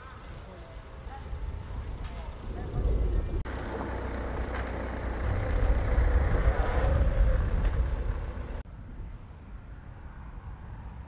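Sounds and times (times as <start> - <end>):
vehicle engine running: 3.4 - 8.6.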